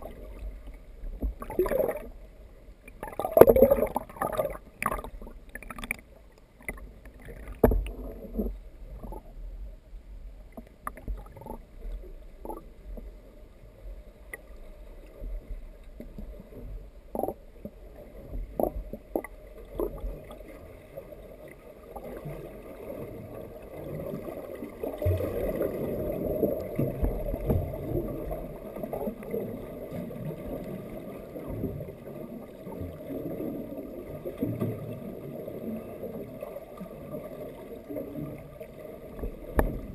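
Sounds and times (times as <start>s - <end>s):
muffled underwater rush: 0.0s - 39.9s.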